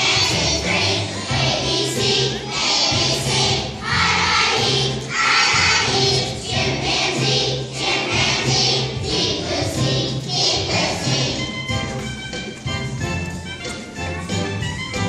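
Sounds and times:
children's choir singing: 0:00.0 - 0:11.9
instrumental accompaniment: 0:00.0 - 0:15.0.

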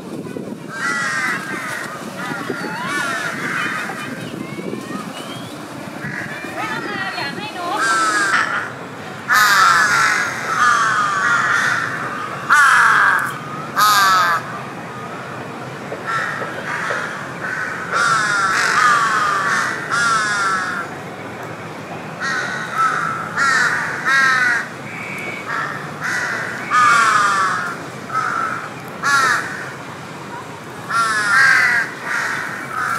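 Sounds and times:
birds calling: 0:00.7 - 0:14.5.

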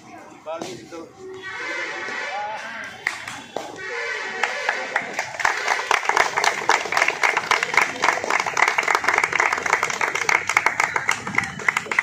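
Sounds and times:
group of people clapping: 0:02.8 - 0:12.0.

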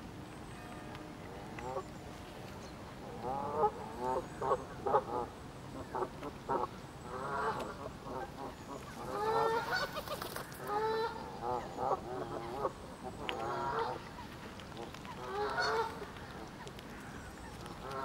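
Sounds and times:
geese honking: 0:05.9 - 0:12.7, 0:15.3 - 0:16.0.

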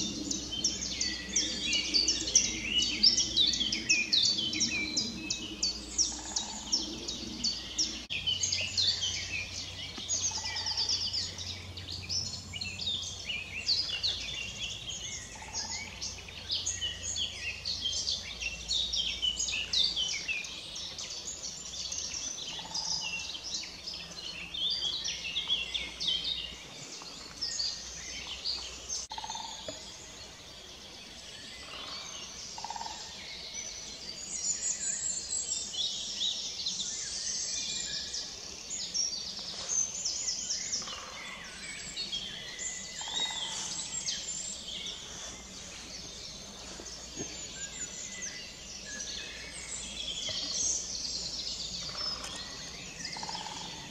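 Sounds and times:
songbirds chorus: 0:00.0 - 0:53.9.

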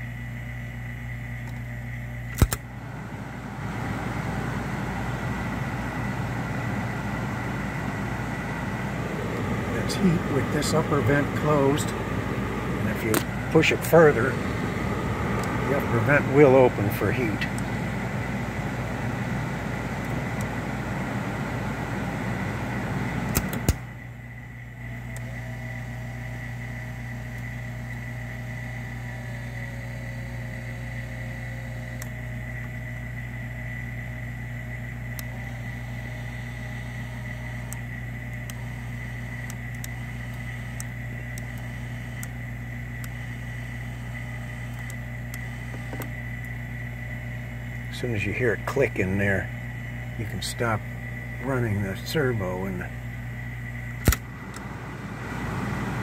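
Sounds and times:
steady hum: 0:00.0 - 0:56.0
wavering motor whine: 0:01.5 - 0:56.0
air rushing from vents: 0:02.3 - 0:29.7, 0:33.5 - 0:56.0
clicks: 0:13.0 - 0:13.4, 0:15.3 - 0:15.7, 0:39.3 - 0:42.4, 0:44.6 - 0:46.6, 0:54.0 - 0:54.7.

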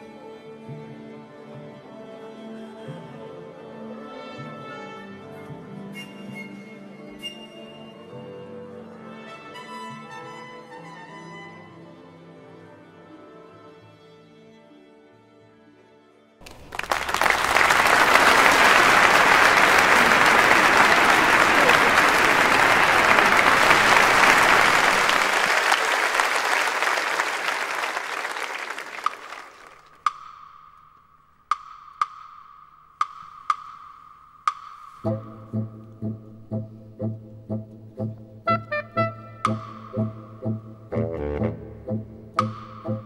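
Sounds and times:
audience applauding: 0:16.4 - 0:30.0
sharp percussion strikes: 0:30.1 - 0:35.4, 0:42.4 - 0:43.0
low brass rhythm: 0:35.0 - 0:43.0.

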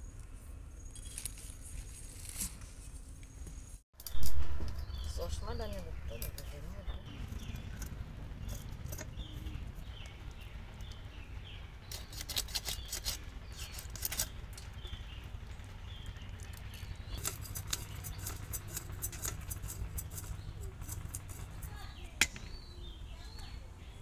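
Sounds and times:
birds chirping: 0:00.0 - 0:24.0
knife scraping fish scales: 0:11.9 - 0:14.4, 0:17.1 - 0:21.9.

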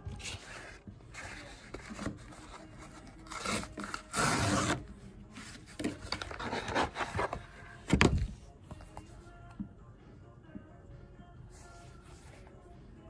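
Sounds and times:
cardboard mailer rubbing and scraping: 0:00.2 - 0:04.8, 0:05.4 - 0:07.7.

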